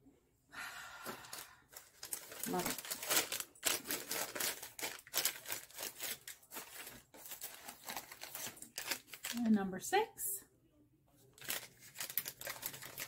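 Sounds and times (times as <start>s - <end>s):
paper rustling and crinkling: 1.2s - 9.6s, 11.2s - 13.0s.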